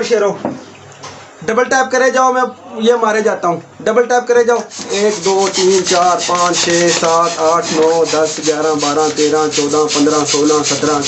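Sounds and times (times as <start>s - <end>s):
air pump squeaky strokes: 4.7s - 11.0s.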